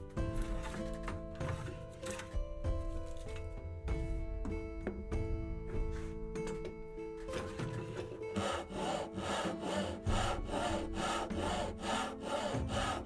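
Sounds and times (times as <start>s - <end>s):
background music: 0.0s - 13.0s
handsaw cutting wood: 7.3s - 13.0s.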